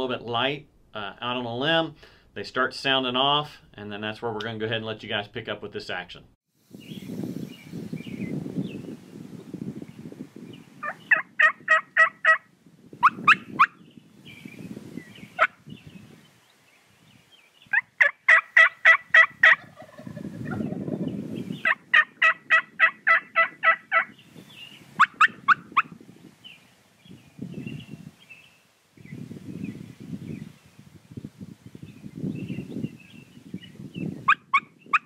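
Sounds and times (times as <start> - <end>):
wild turkeys calling: 10.8 - 12.4, 17.7 - 20.8, 21.6 - 24.2, 25.0 - 25.9.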